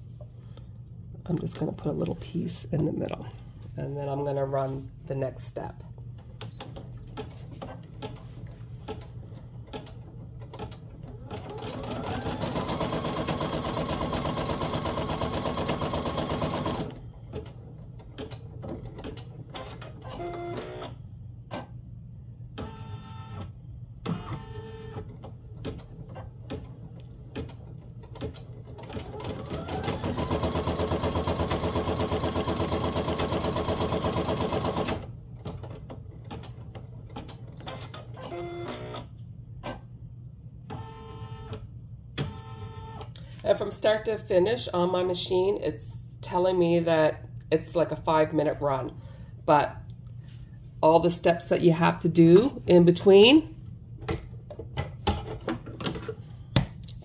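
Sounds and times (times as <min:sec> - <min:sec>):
embroidery machine stitching: 0:08.9 - 0:20.9, 0:25.7 - 0:39.0.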